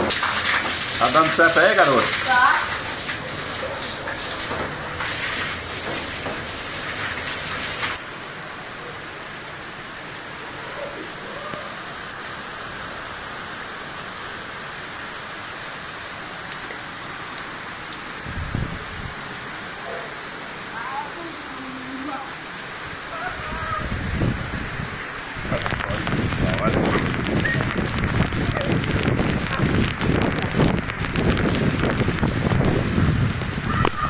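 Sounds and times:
water gushing from roof spout: 0:00.0 - 0:08.0, 0:23.1 - 0:34.0
heavy rain falling: 0:00.0 - 0:34.0.

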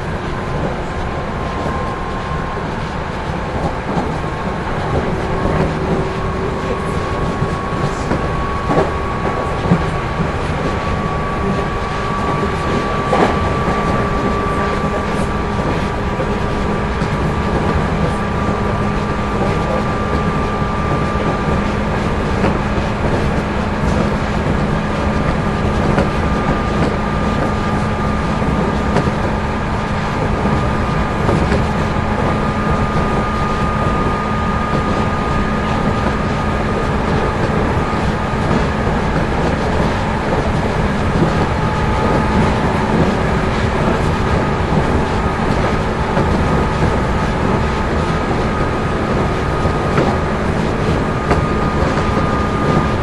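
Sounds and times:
train wheels rumbling on rails: 0:00.0 - 0:53.0.

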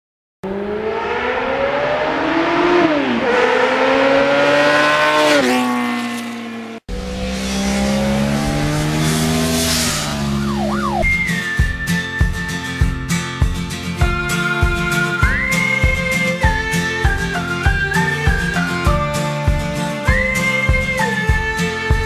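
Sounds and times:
motorcycle engine accelerating: 0:00.4 - 0:14.2.

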